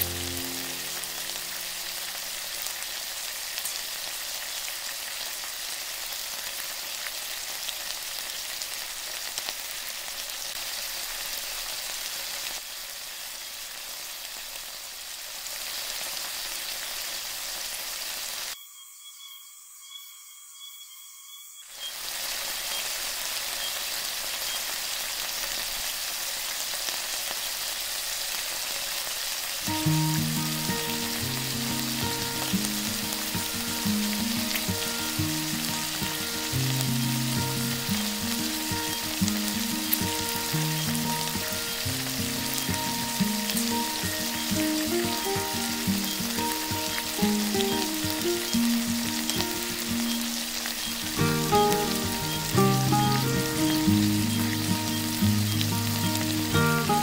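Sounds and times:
background music: 0:00.0 - 0:01.8, 0:51.2 - 0:57.0
food sizzling in a pan: 0:00.0 - 0:18.6, 0:21.6 - 0:57.0.

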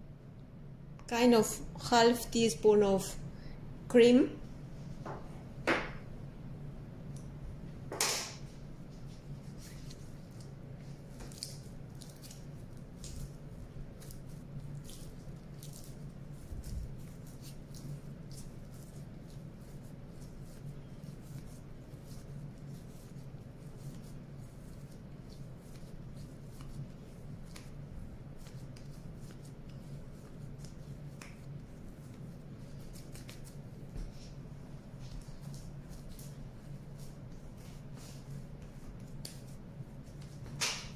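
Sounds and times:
clay dough tacky clicks and crackles: 0:09.4 - 0:40.9.

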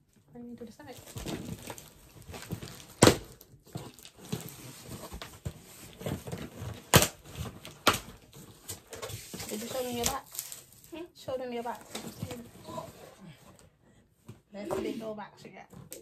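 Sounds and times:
packaging rustling and crinkling: 0:00.8 - 0:13.2.

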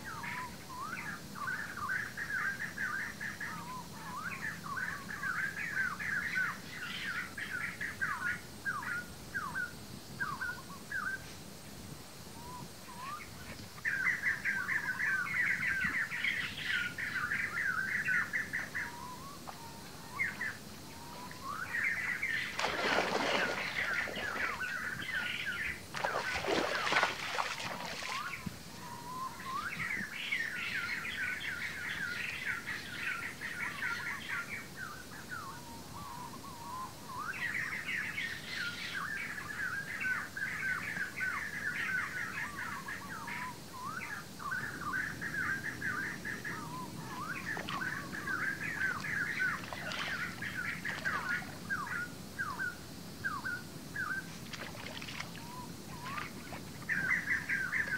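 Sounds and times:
birds chirping and trilling: 0:12.4 - 0:57.9
feet wading through water: 0:20.8 - 0:28.6, 0:47.0 - 0:52.0, 0:54.2 - 0:57.9.

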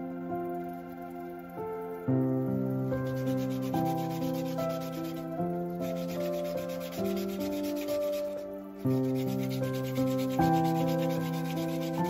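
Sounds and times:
slow keyboard music: 0:00.0 - 0:12.0
sandpaper rubbing on wood: 0:03.0 - 0:12.0.

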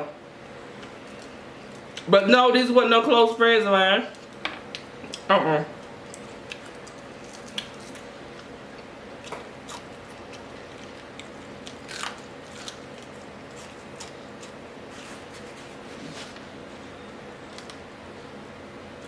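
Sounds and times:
crunching fried fish: 0:05.1 - 0:14.6.

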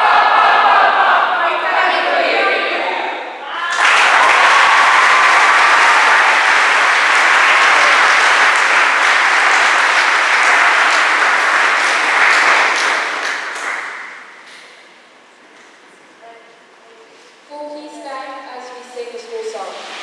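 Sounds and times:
audience applauding: 0:03.6 - 0:14.7.

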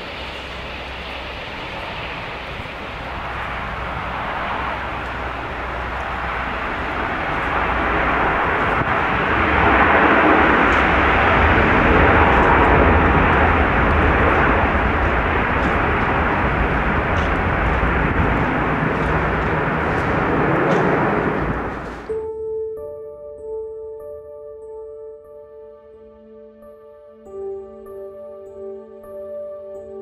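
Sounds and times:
jet engines in reverse thrust: 0:00.0 - 0:22.2.

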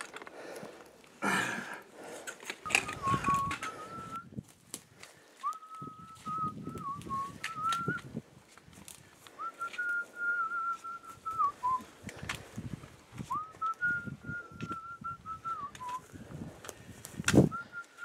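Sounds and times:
boots and poles on rocky ground: 0:00.0 - 0:18.0
person whistling a slow tune: 0:02.7 - 0:04.3, 0:05.4 - 0:08.1, 0:09.4 - 0:11.9, 0:13.2 - 0:16.1, 0:17.4 - 0:18.0.

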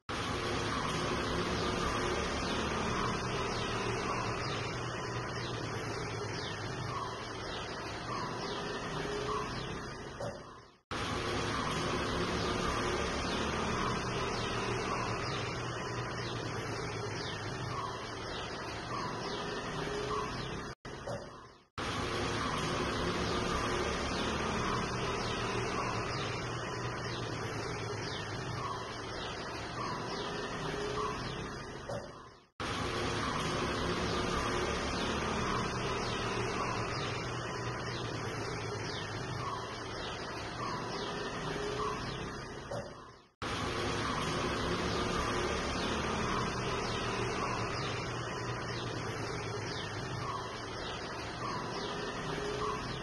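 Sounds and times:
outdoor background hum and hiss: 0:00.1 - 0:53.0
high bird chirps: 0:11.5 - 0:53.0.

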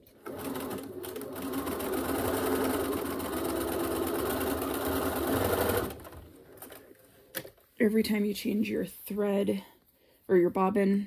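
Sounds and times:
sewing machine stitching: 0:00.0 - 0:06.8.

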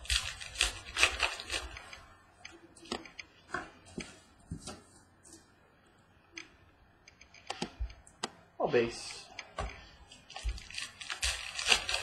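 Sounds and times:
trading cards rustling: 0:00.0 - 0:02.0, 0:10.1 - 0:12.0.

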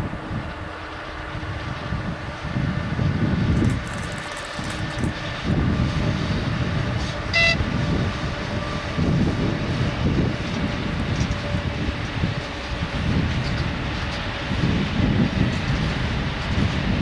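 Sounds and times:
freight train wheels rumbling: 0:00.0 - 0:17.0
brief high tone: 0:07.3 - 0:07.6.

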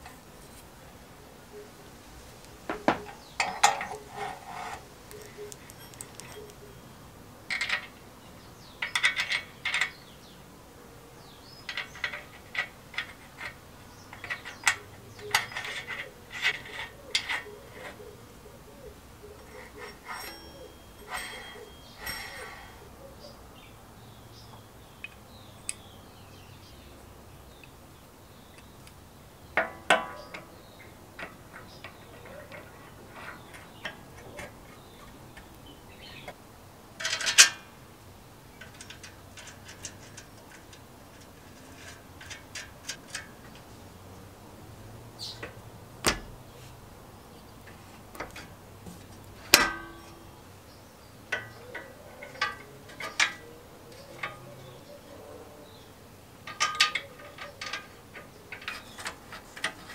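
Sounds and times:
small metal parts clicking: 0:03.0 - 0:06.6, 0:07.5 - 0:08.0, 0:08.8 - 0:10.1, 0:11.6 - 0:18.0, 0:19.4 - 0:22.8, 0:37.0 - 0:37.7, 0:38.6 - 0:43.7, 0:51.3 - 0:54.8, 0:56.4 - 0:59.9
ringing metallic clinks: 0:05.1 - 0:06.6, 0:19.4 - 0:22.8.

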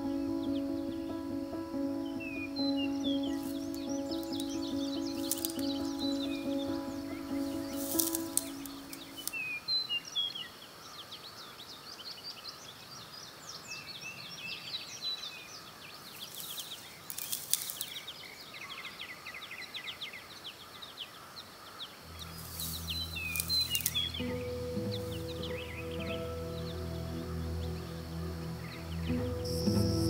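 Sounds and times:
low sustained music notes: 0:00.0 - 0:09.4, 0:22.0 - 0:30.0
small birds chirping: 0:00.0 - 0:30.0.

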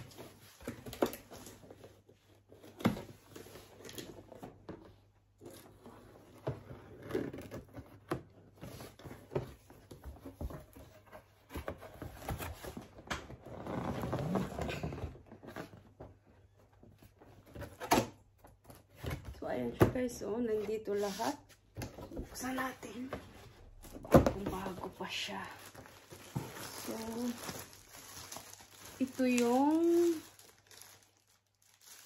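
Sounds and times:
cardboard flaps tearing and scraping: 0:12.0 - 0:15.8.

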